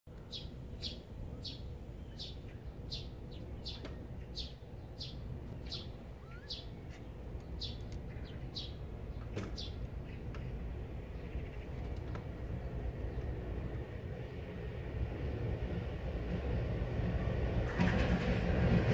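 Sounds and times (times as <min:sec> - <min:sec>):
small bird chirping: 0:00.2 - 0:10.3.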